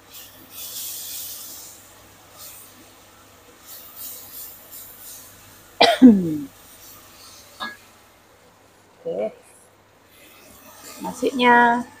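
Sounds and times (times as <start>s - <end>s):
spatula scraping a wok: 0.1s - 2.8s, 3.6s - 5.7s, 6.6s - 7.8s, 10.1s - 12.0s
person coughing: 5.8s - 6.5s.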